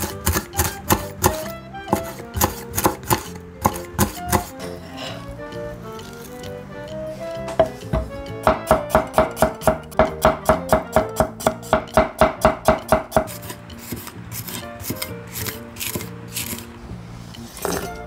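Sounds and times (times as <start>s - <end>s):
knife chopping on wooden board: 0.0s - 4.5s, 7.5s - 16.6s
knife cutting chili peppers: 0.0s - 4.9s, 7.6s - 16.7s.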